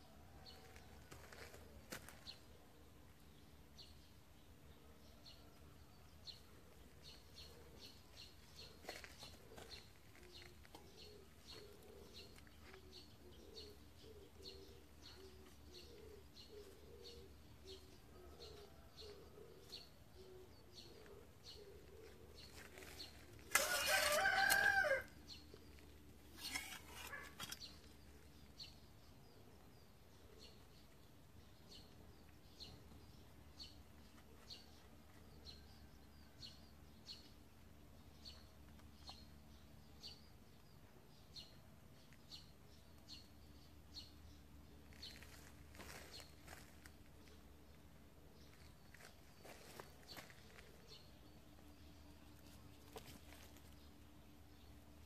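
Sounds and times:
rooster crowing: 0:23.5 - 0:25.2.

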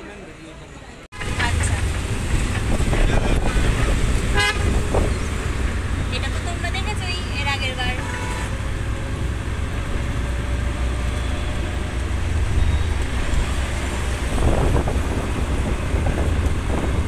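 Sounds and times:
road noise: 0:00.0 - 0:17.0
vehicle engine rumble: 0:00.0 - 0:17.0
wind on microphone: 0:02.0 - 0:05.7, 0:12.2 - 0:17.0.

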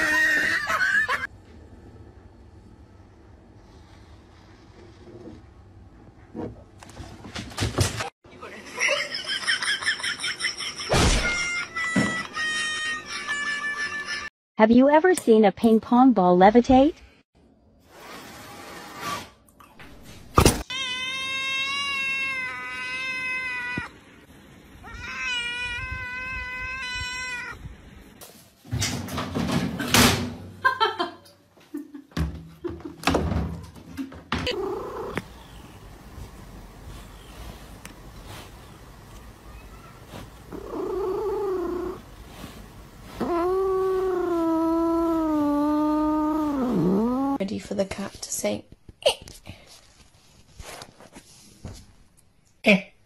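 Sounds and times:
cat yowling: 0:20.7 - 0:23.9, 0:24.8 - 0:27.6, 0:39.6 - 0:42.0, 0:43.1 - 0:47.4.

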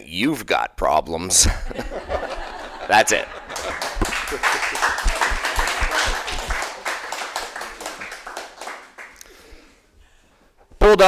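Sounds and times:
small group clapping: 0:02.2 - 0:09.7.

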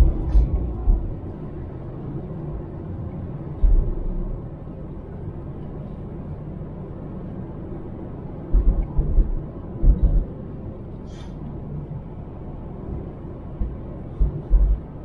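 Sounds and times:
deep thumps: 0:00.0 - 0:01.2, 0:03.6 - 0:04.2, 0:08.5 - 0:10.3, 0:13.6 - 0:14.9
car engine and tyres rumbling: 0:00.0 - 0:15.0.

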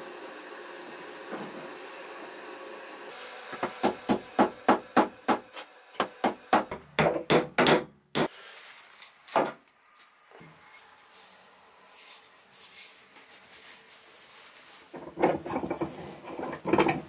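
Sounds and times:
hammer knocking on wood: 0:06.0 - 0:08.3.

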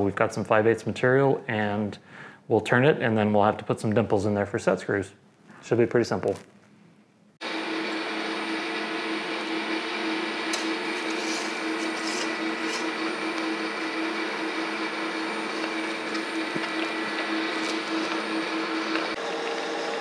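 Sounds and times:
metal lathe motor hum: 0:07.4 - 0:20.0.

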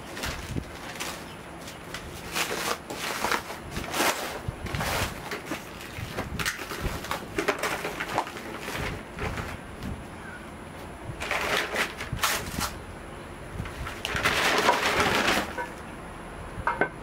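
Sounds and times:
packing material crinkling and tearing: 0:00.0 - 0:09.6, 0:11.2 - 0:12.8, 0:13.6 - 0:15.8.

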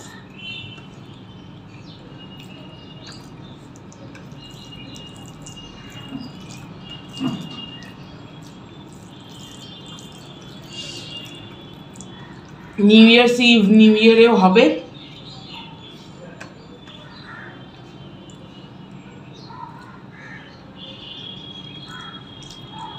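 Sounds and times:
person chewing: 0:02.2 - 0:12.8, 0:21.8 - 0:22.9
fingers squeezing rice on plate: 0:02.4 - 0:12.7.

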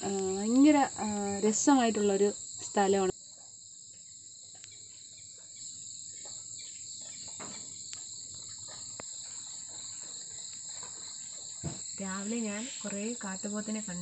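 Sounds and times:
high-pitched insect chorus: 0:00.0 - 0:14.0
faint ticks: 0:04.0 - 0:04.8, 0:07.0 - 0:11.0.

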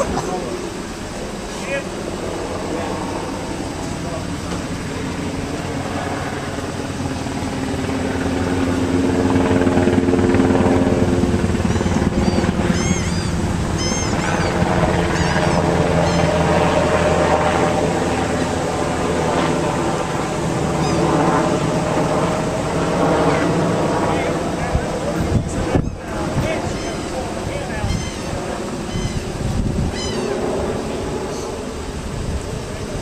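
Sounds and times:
engine running: 0:00.0 - 0:33.0
high chirps: 0:11.7 - 0:16.3, 0:27.9 - 0:29.3, 0:29.9 - 0:30.4.

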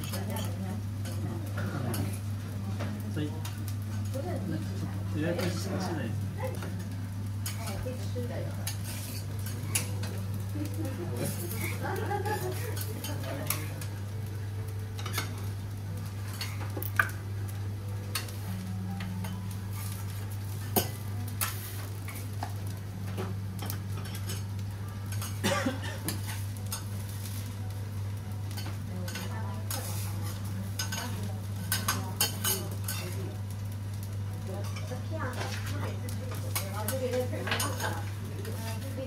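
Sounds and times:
faint sizzle: 0:00.0 - 0:39.0
metal spatulas clinking on griddle: 0:08.6 - 0:10.2, 0:11.2 - 0:13.8, 0:15.0 - 0:15.4, 0:20.6 - 0:22.5, 0:28.5 - 0:33.2, 0:34.6 - 0:35.7, 0:36.3 - 0:38.0.

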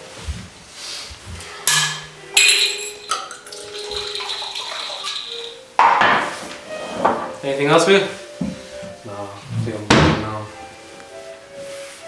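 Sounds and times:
glassy knock: 0:01.7 - 0:03.4
liquid pouring into glass: 0:02.8 - 0:05.6.

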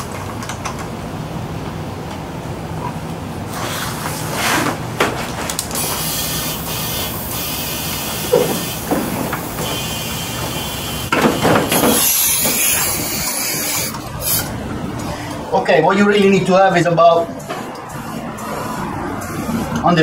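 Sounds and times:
compressed air hissing into tire: 0:05.7 - 0:14.5.

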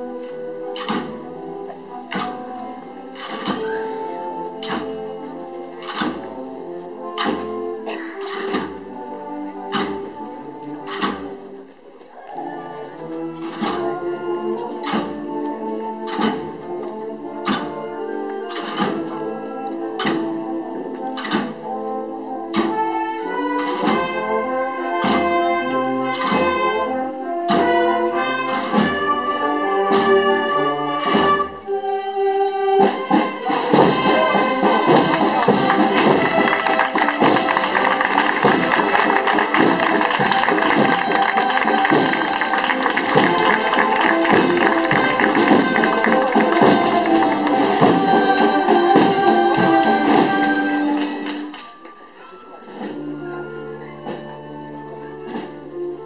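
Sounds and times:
brass band playing a march: 0:00.0 - 0:56.0
rapid drumming: 0:33.5 - 0:51.0.

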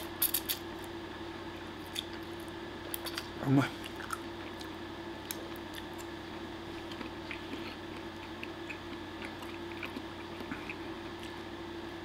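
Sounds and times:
steady low hum: 0:00.0 - 0:12.0
soft chewing: 0:01.8 - 0:11.5.

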